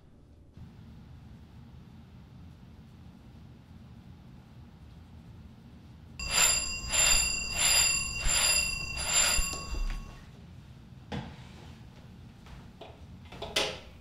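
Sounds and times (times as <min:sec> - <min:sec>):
telephone bell ringing: 0:06.2 - 0:10.3.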